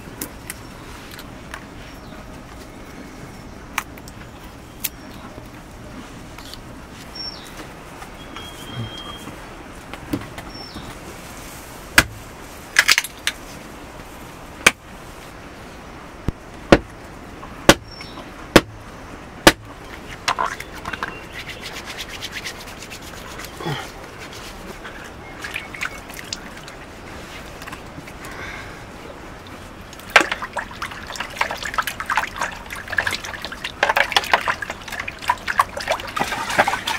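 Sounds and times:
knife chopping into wood: 0:18.6 - 0:18.8, 0:19.5 - 0:19.7.

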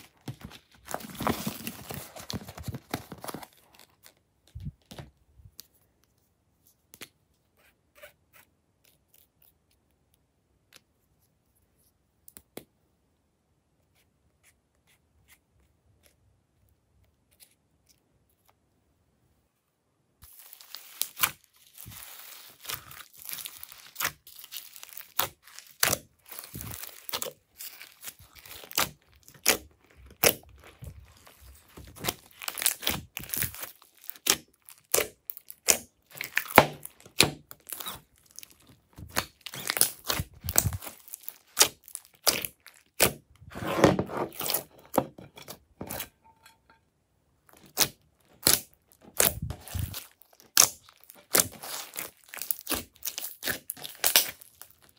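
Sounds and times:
slime popping and crunching: 0:31.9 - 0:43.3, 0:47.6 - 0:54.9.

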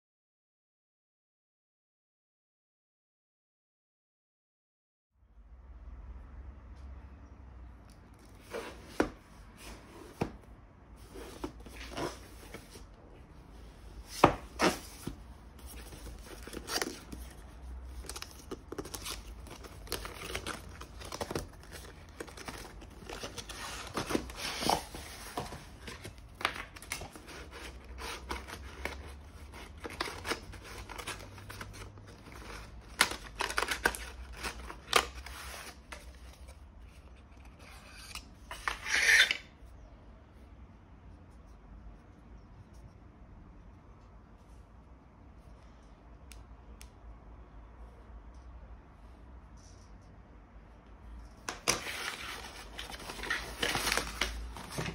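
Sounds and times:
cardboard box handled and opened: 0:08.2 - 0:13.0, 0:13.6 - 0:37.7, 0:51.4 - 0:54.9
paper rustling: 0:13.6 - 0:39.3, 0:51.3 - 0:54.9.

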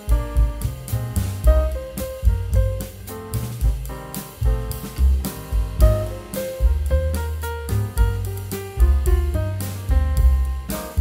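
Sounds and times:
drum kit: 0:00.0 - 0:11.0
walking bass line: 0:00.0 - 0:11.0.

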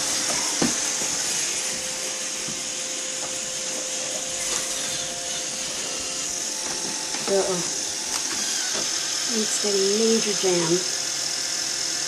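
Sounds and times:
robot vacuum whirring: 0:00.0 - 0:12.0.

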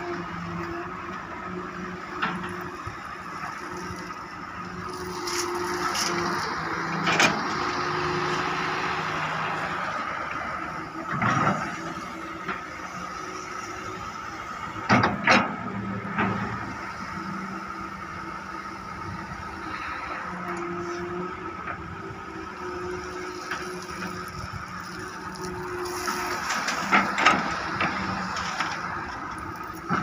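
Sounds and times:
excavator diesel engine running: 0:00.0 - 0:30.0
bucket clanking and scraping gravel: 0:04.9 - 0:06.4, 0:23.6 - 0:30.0.

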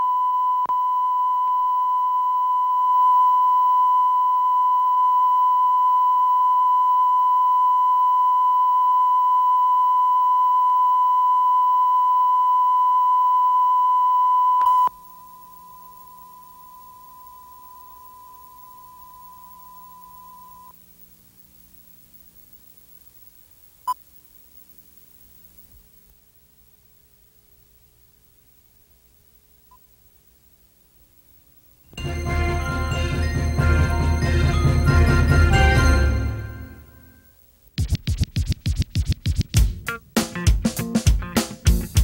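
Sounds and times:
steady test tone: 0:00.0 - 0:20.8, 0:31.9 - 0:37.3.

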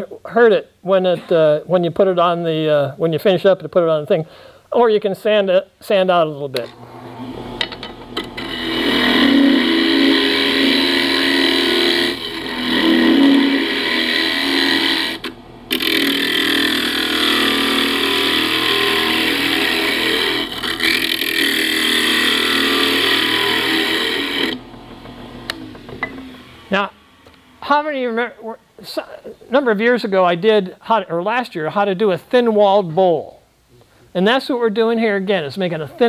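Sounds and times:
gouge cutting wood on lathe: 0:06.8 - 0:26.8.

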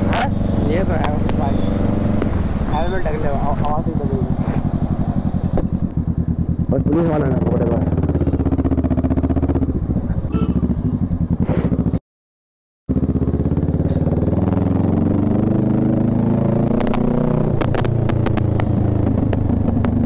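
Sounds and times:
motorcycle engine running: 0:00.0 - 0:12.0, 0:12.9 - 0:20.0
sharp clicks: 0:17.6 - 0:20.0.

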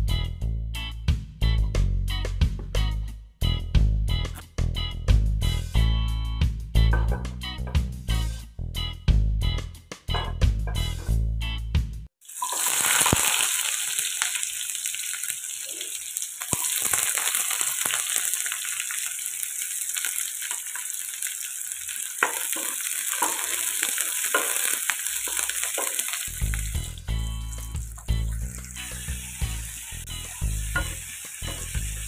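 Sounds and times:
onions sizzling in hot oil: 0:12.2 - 0:32.0.

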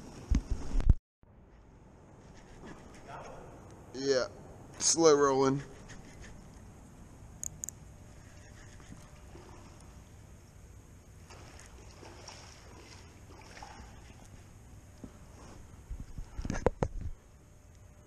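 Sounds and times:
low rumble of water and wind: 0:09.1 - 0:17.3
water swells swishing: 0:11.2 - 0:14.6.

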